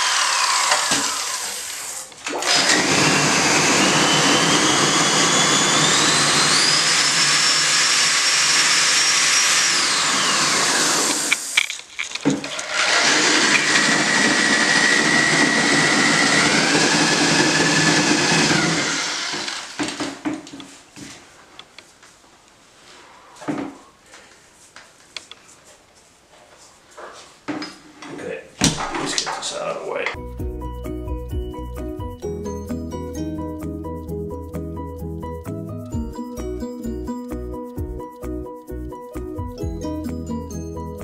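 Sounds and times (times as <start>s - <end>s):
drill mixing mortar in bucket: 0.0s - 20.3s.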